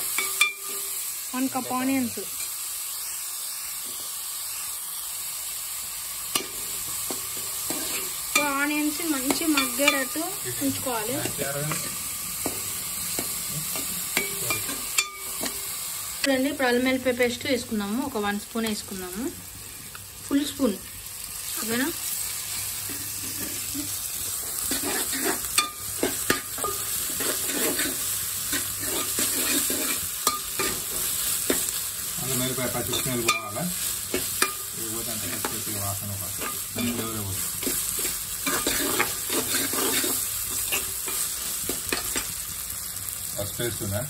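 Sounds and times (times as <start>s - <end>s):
onions sizzling in oil: 0.0s - 44.0s
spoon scraping a pot: 7.7s - 8.2s, 22.8s - 23.9s, 24.6s - 31.7s, 36.4s - 42.3s.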